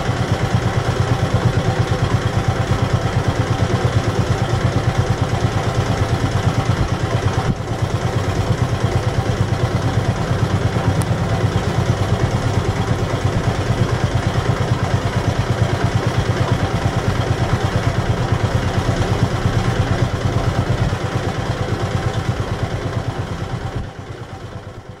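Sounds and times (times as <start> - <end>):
boat diesel engine throbbing: 0.0 - 25.0.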